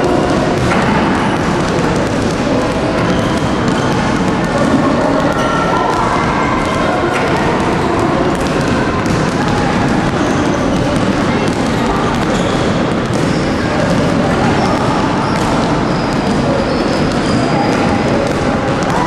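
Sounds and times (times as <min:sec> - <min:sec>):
basketballs bouncing on wooden floor: 0:00.0 - 0:19.0
children's voices: 0:04.5 - 0:12.2.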